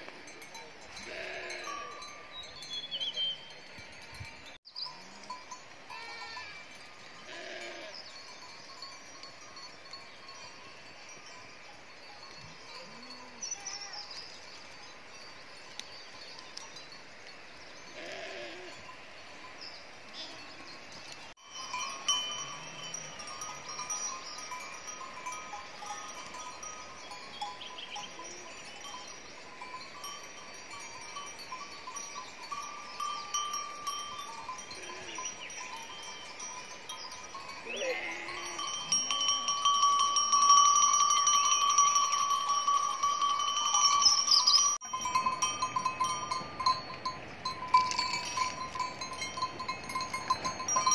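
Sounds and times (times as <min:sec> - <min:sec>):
sheep bleating: 0:37.6 - 0:38.9.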